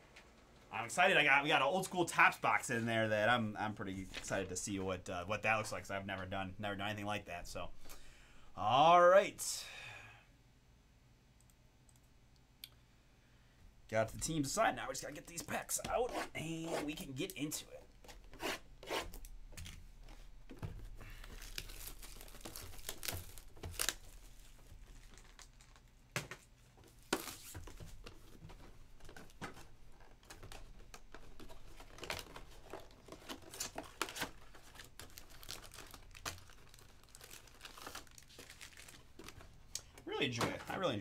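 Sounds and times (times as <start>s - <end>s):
cardboard rustling: 19.6s - 39.5s
foil wrappers crinkling: 21.0s - 26.1s, 29.0s - 39.5s.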